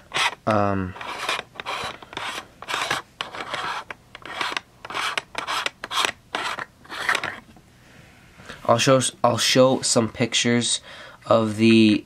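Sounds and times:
lens threads scraping: 1.0 - 7.4.

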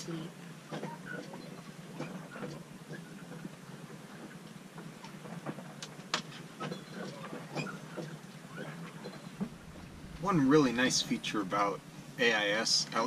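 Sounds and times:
steady low hum: 9.2 - 13.0.

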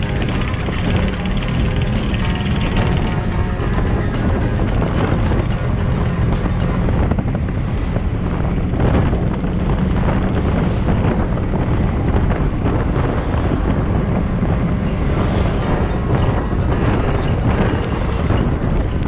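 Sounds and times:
car engine: 0.0 - 10.1, 13.3 - 19.0
road noise: 0.0 - 19.0
wind rumbling on microphone: 0.0 - 19.0.

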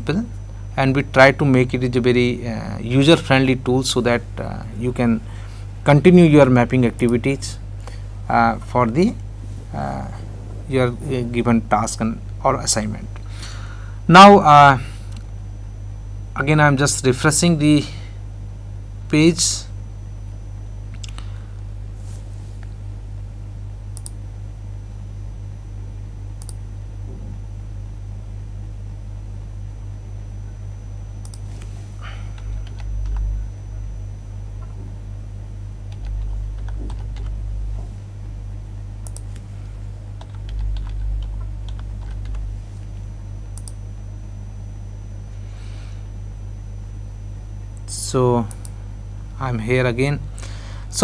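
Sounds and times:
electrical hum: 0.0 - 51.0
low rumble: 9.2 - 12.5, 40.2 - 42.9
keyboard typing: 32.4 - 33.4, 35.9 - 37.4, 40.2 - 42.5.

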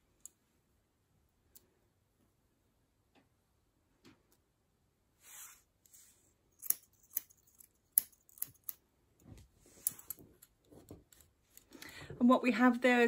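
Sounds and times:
grooming scissors snipping: 6.6 - 8.8.

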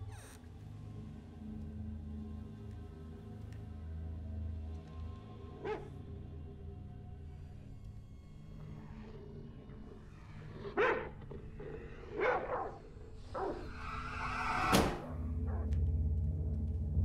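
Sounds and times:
low pulsing rumble: 12.8 - 17.0.

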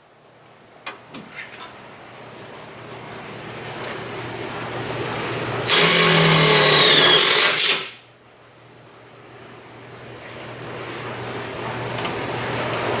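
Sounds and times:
cordless drill driving screw into steel: 5.6 - 8.0.

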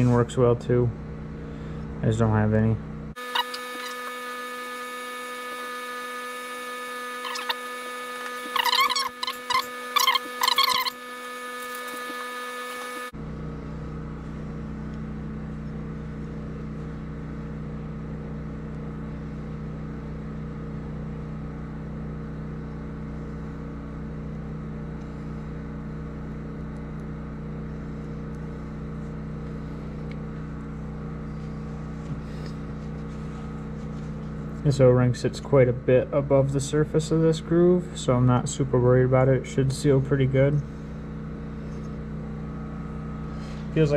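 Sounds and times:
low machine hum: 0.0 - 43.9
short high squeaks: 3.2 - 5.0, 6.9 - 13.1.

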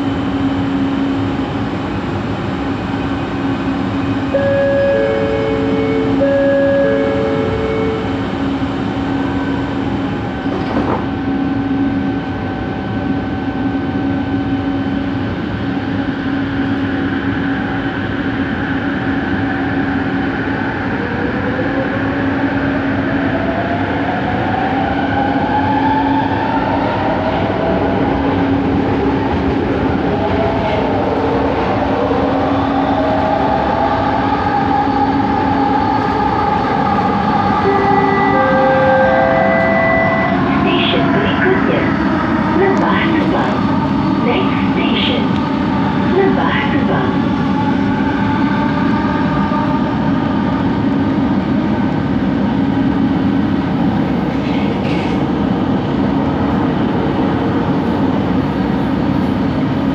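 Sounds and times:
stationary train hum: 0.0 - 59.9
train propulsion whine: 0.0 - 59.9
train doors closing knock: 10.4 - 11.1.

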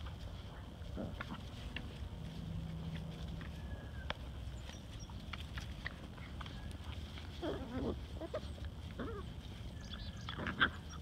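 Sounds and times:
puppies whining: 3.3 - 11.0.

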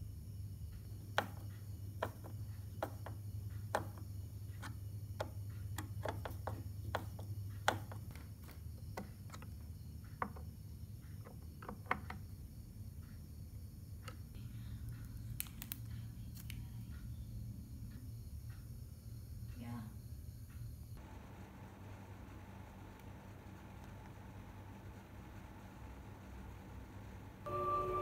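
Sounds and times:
tool and parts knocking: 1.2 - 9.5, 10.1 - 10.5, 11.2 - 12.2
screwdriver clicking and tapping: 4.6 - 9.5
steady low hum: 12.4 - 28.0.

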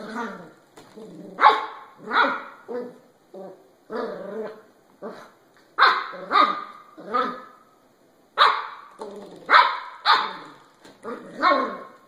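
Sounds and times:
puppy barking and yipping: 1.4 - 2.9, 5.8 - 7.6, 8.4 - 10.6.

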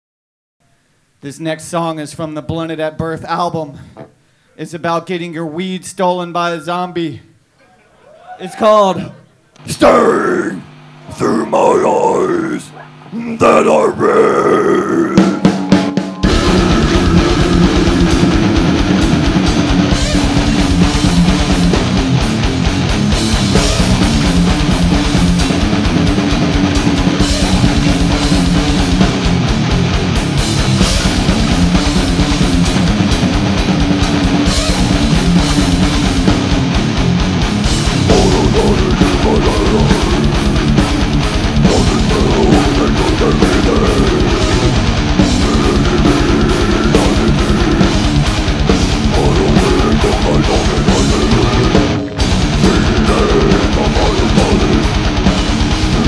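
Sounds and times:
death metal band playing live: 13.4 - 56.0.

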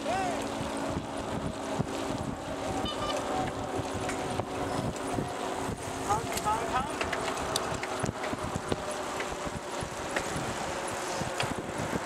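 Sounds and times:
wind buffeting microphone: 0.0 - 12.0
bicycle clicks and rattles: 3.1 - 12.0
tyres rolling on asphalt: 3.2 - 12.0.

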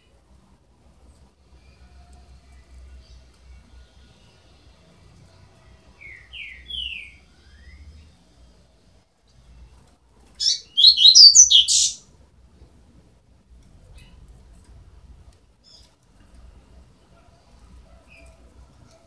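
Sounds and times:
high chirps of chicks: 10.4 - 12.0.

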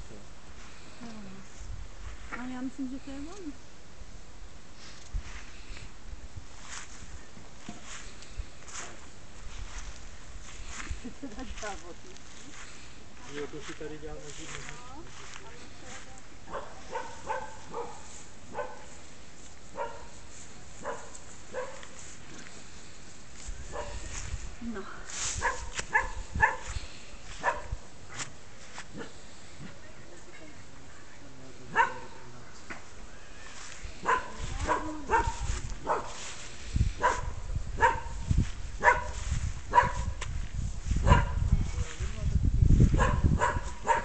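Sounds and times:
dog barking: 16.5 - 18.9, 19.8 - 20.1, 20.8 - 21.9, 23.7 - 24.0, 25.4 - 26.7, 27.4 - 27.8, 31.7 - 32.2, 34.0 - 36.2, 37.0 - 38.2, 38.8 - 40.2, 41.0 - 41.4, 43.0 - 44.0.

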